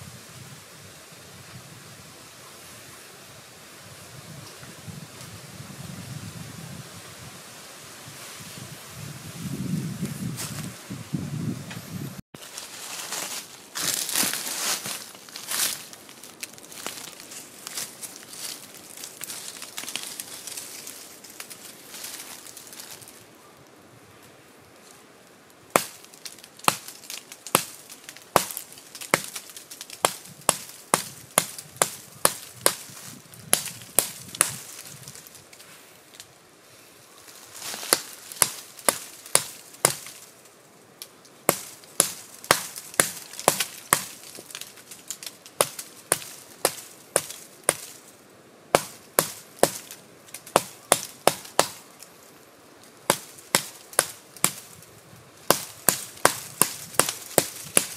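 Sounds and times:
knife chopping into wood: 48.8s - 49.8s.

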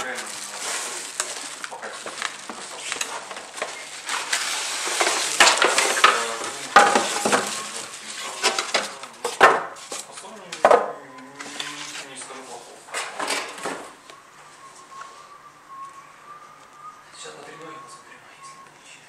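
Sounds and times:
styrofoam and cardboard rubbing: 0.0s - 8.6s
plastic wrap crinkling: 0.0s - 10.6s.

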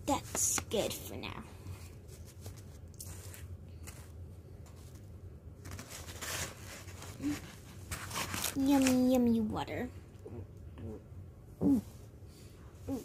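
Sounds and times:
low steady hum: 0.0s - 13.0s
plastic toys rustling on paper: 2.0s - 9.2s.

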